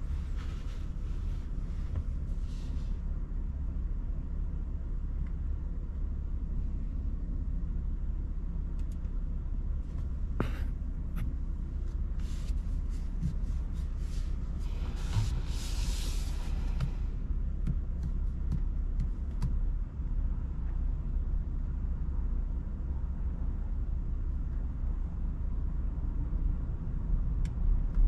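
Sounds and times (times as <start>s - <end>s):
tyre and road noise: 0.0s - 3.1s, 9.8s - 19.8s.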